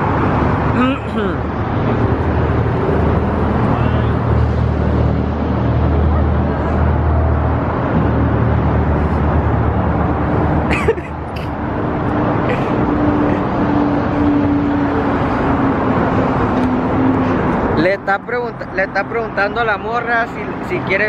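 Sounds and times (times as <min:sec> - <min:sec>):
road traffic rushing: 0:00.0 - 0:21.0.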